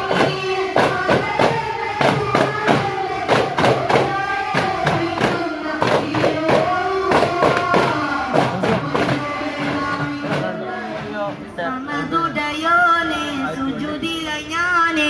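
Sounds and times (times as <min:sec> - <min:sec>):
frame drums struck: 0:00.0 - 0:11.4
group singing long notes: 0:00.0 - 0:15.0.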